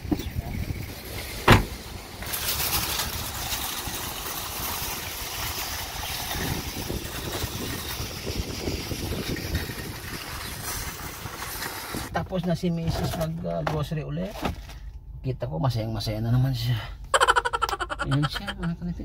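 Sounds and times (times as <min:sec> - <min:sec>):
outdoor rumble and hiss: 0:00.0 - 0:19.0
shopping cart rattling on asphalt: 0:00.8 - 0:12.1.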